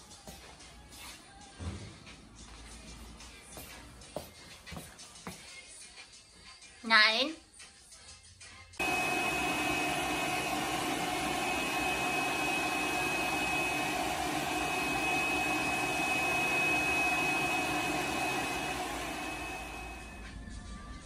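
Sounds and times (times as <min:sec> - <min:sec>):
blow dryer whining: 0:08.8 - 0:20.4.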